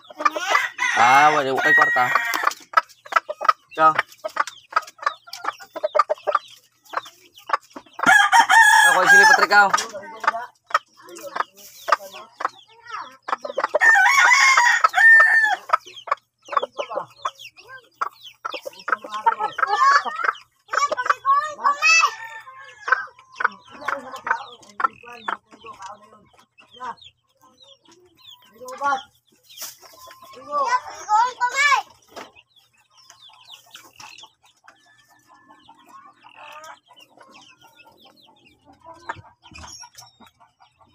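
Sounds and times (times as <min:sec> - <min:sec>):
beak pecking feed in a bowl: 0:00.0 - 0:31.2
chickens clucking and chirping: 0:00.0 - 0:40.9
rooster crowing: 0:00.4 - 0:02.5, 0:08.1 - 0:09.4.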